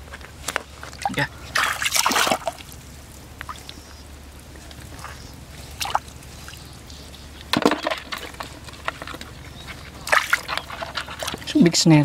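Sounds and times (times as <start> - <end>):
water sloshing: 0.4 - 11.8
water splashes: 0.8 - 6.7, 10.0 - 11.7.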